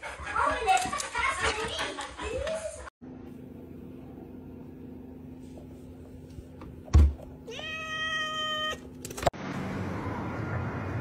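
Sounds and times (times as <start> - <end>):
cat meowing: 7.5 - 8.9.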